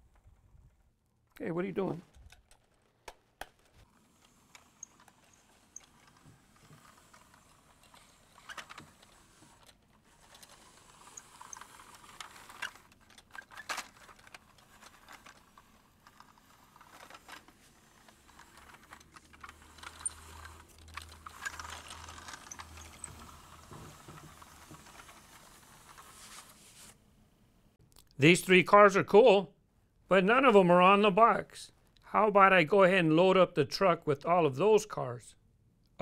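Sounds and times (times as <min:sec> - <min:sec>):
toy truck rolling on carpet: 0:00.0 - 0:01.2, 0:01.9 - 0:27.0
plastic clicks and rattles: 0:02.0 - 0:26.3.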